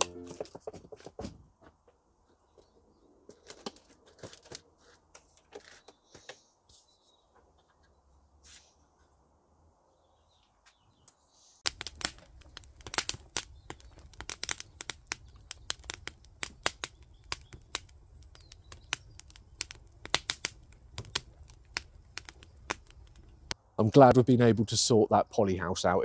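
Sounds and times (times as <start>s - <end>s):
wood fire crackling and popping: 11.6s - 23.6s.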